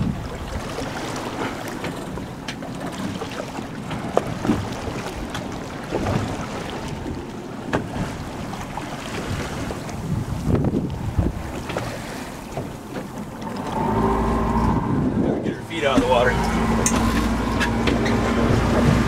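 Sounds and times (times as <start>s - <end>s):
wind on microphone: 0.0s - 0.9s, 5.9s - 12.8s, 13.4s - 19.0s
choppy water against boat: 0.0s - 19.0s.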